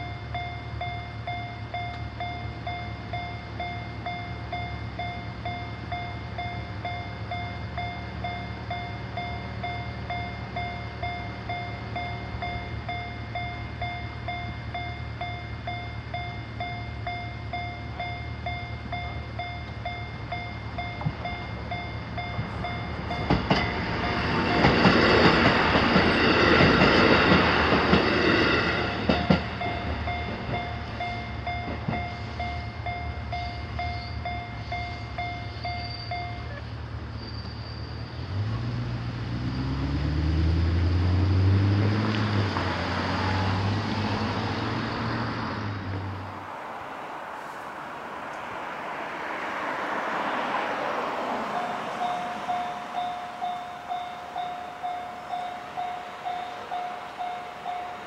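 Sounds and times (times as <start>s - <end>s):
railway crossing bell ringing: 0.0s - 38.1s, 48.4s - 58.0s
diesel railcar passing: 0.0s - 58.0s
car engine pulling away: 38.1s - 46.4s.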